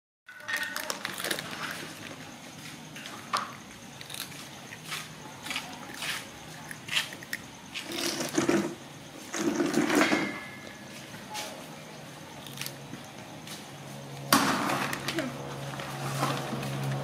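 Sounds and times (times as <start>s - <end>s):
crunchy snack being chewed: 0.7s - 2.2s, 3.0s - 8.6s, 12.4s - 13.0s.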